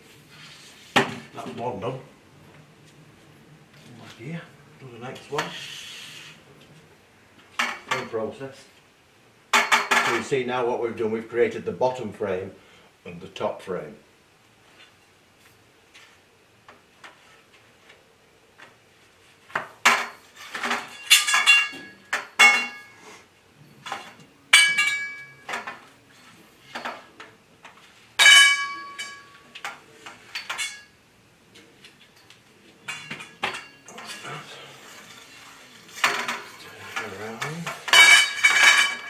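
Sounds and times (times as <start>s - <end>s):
metal tubes clanking: 23.8s - 25.8s.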